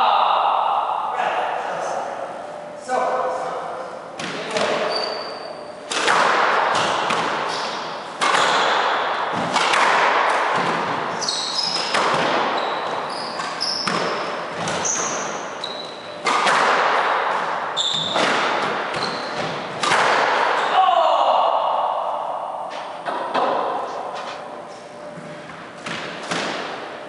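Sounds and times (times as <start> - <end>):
squash ball hitting rackets and walls: 4.2 - 20.7, 22.7 - 24.4, 25.0 - 27.0
sneakers squeaking on floor: 4.5 - 5.9, 11.1 - 16.4, 17.3 - 19.8.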